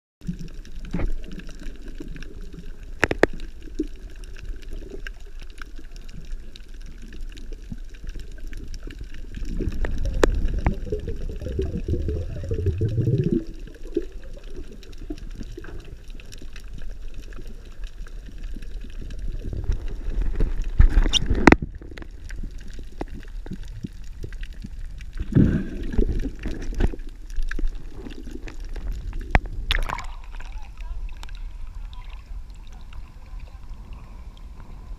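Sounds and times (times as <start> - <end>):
underwater sloshing and gurgling: 0.2 - 34.9
sharp underwater clicks and knocks: 2.9 - 3.8, 19.5 - 30.5.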